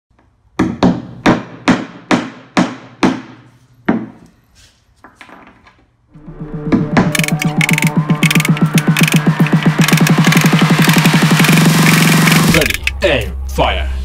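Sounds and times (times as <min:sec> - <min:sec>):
hammer striking plywood board: 0:00.6 - 0:04.2
music: 0:06.1 - 0:14.0.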